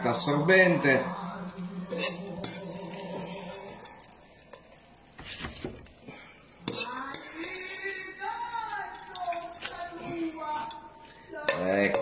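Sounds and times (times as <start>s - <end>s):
low steady hum: 0.0s - 5.2s.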